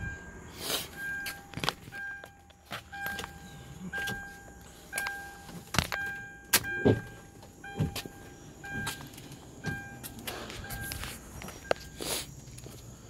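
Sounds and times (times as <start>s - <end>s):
car warning chime: 0.0s - 12.0s
dull thumps of person moving: 6.7s - 9.1s.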